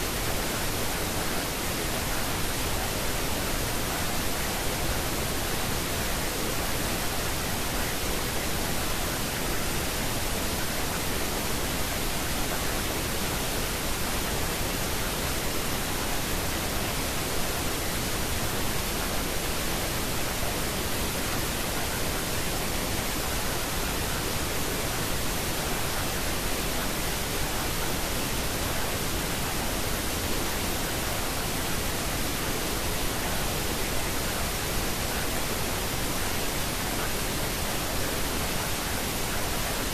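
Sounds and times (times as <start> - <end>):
pink noise hiss: 0.0 - 39.9.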